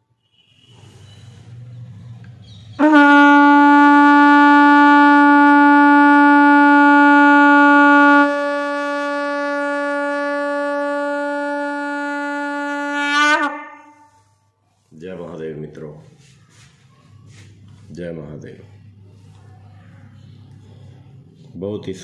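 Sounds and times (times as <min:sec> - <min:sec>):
conch shell blown: 0:02.8 - 0:14.5.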